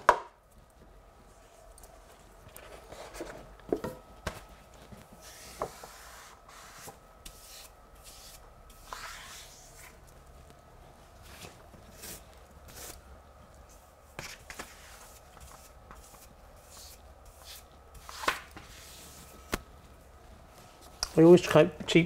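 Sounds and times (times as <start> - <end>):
brush rubbing on wallpaper: 5.2 - 10.0, 11.2 - 13.0, 14.1 - 19.4.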